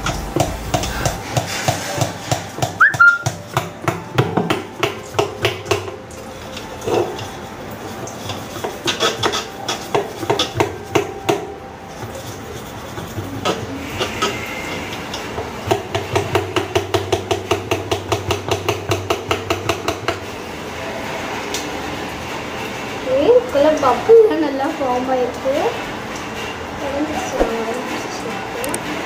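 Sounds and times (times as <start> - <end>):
stick knocking against bottle neck: 2.0 - 5.6
brush scrubbing metal bottle: 6.8 - 10.9, 11.9 - 14.4.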